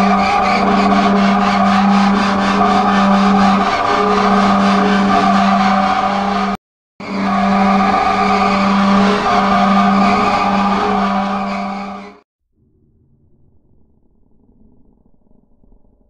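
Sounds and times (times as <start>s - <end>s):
harsh steady drone: 0.0s - 12.2s.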